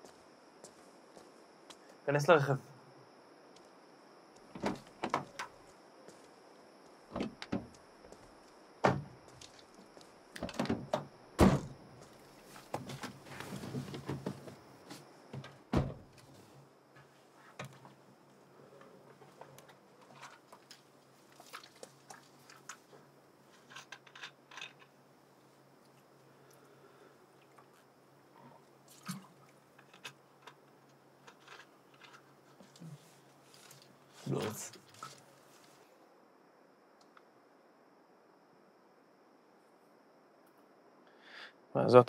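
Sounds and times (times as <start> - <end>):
car doors opening and shutting: 4.5 - 5.5, 10.4 - 11.8, 15.4 - 16.1
heavy car door thuds: 11.4 - 11.8, 15.7 - 16.1
faint clicks and rustling: 12.0 - 25.0, 28.9 - 35.8.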